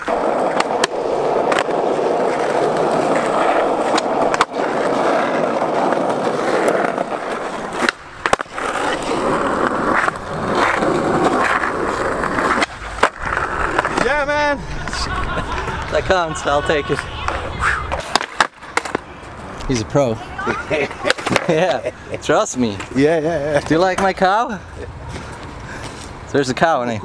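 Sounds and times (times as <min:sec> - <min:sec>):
skateboard clacks: 0:00.0 - 0:19.8, 0:20.4 - 0:21.9
skateboard wheels rolling on asphalt: 0:00.0 - 0:27.0.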